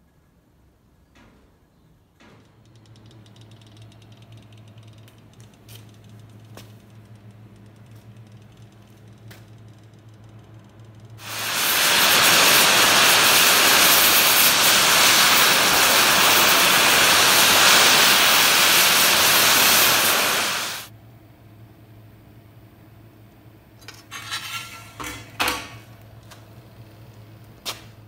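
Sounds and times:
welding arc hissing: 11.2 - 20.9.

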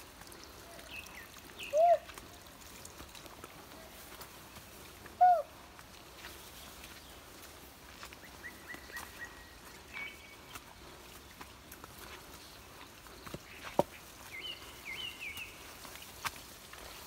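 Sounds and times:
footsteps in undergrowth: 0.0 - 17.0
birds calling: 0.2 - 2.4, 3.5 - 17.0.

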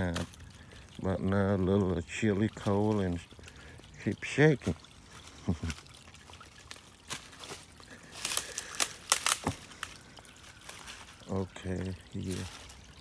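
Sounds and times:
creek trickling over rocks: 0.0 - 13.0
sharp crackles and knocks: 8.2 - 10.0.

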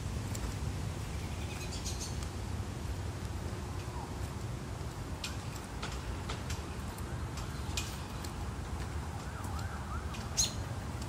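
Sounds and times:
footsteps on wood-chip mulch: 0.0 - 11.0
low outdoor rumble: 0.0 - 11.0
distant siren wailing: 8.8 - 11.0.

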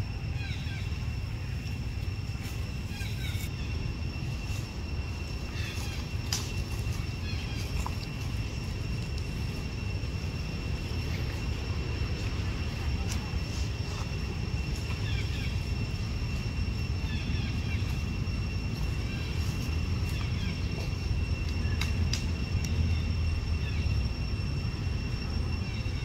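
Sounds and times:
high insect drone: 0.0 - 26.0
steady low rumble: 0.0 - 26.0.

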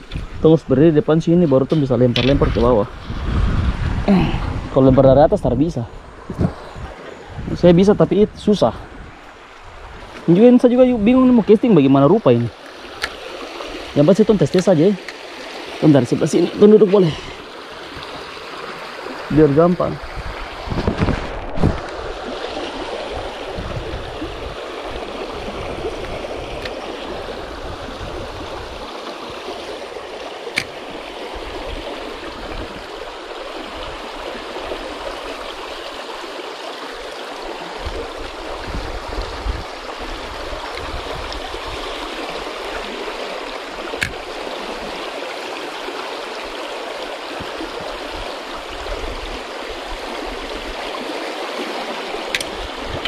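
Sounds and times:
river rushing and gurgling: 0.0 - 53.0
sharp clicks: 52.3 - 52.6.

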